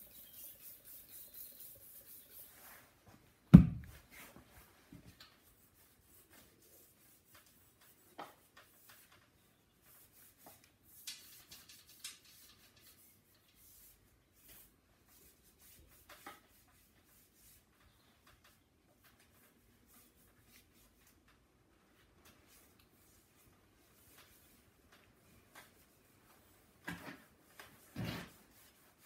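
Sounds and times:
sponge rubbing on bicycle frame: 0.0 - 3.0, 5.2 - 21.2, 25.5 - 29.0.

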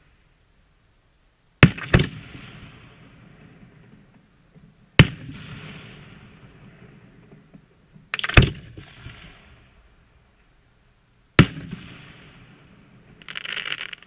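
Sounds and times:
firework shells bursting: 13.1 - 14.0.

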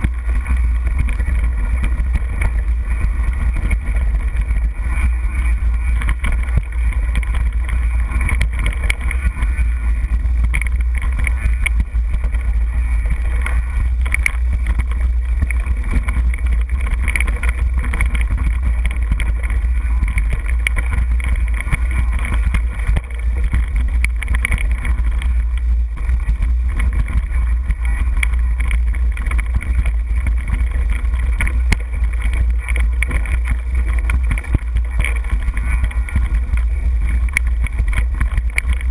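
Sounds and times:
bike tyres clicking and rattling: 0.0 - 38.9
wind rumble on microphone: 0.0 - 38.9.

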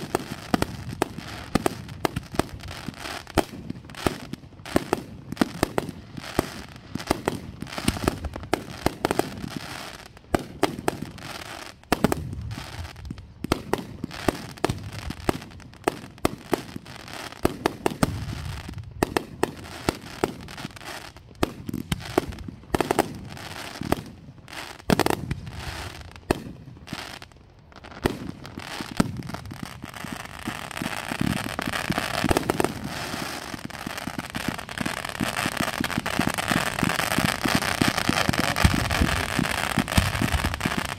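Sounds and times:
hiss of firework fountains: 19.7 - 40.9
firework shell bursts with crackle: 34.3 - 40.9.

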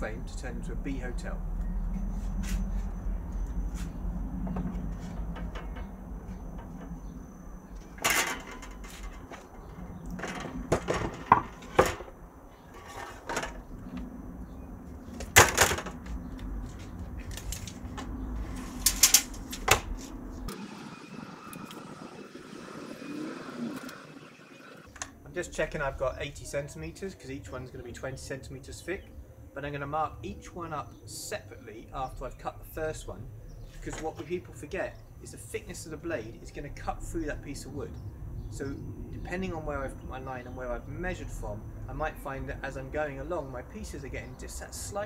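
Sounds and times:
wooden plank knocking and clattering: 8.0 - 12.1.

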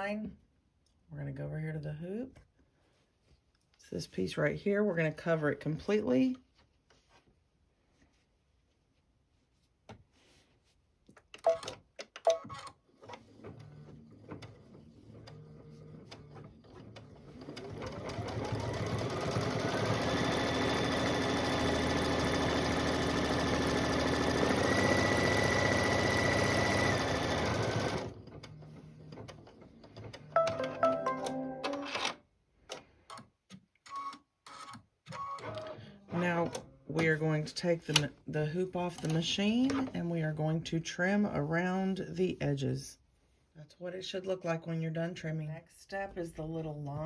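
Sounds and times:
embroidery machine stitching: 12.5 - 30.3.

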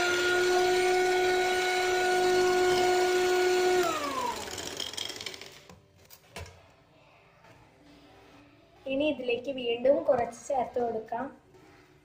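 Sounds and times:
electric hand mixer humming: 0.0 - 5.6.

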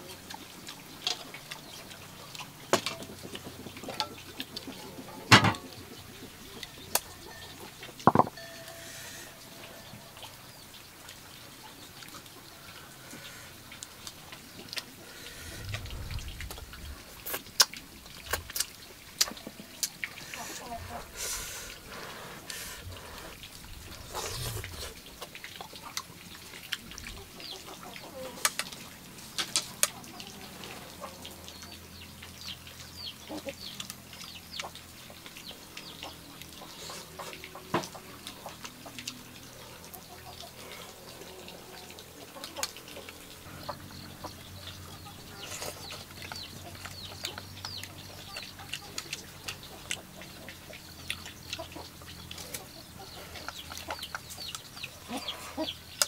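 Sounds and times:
chickens clucking: 0.0 - 56.0.

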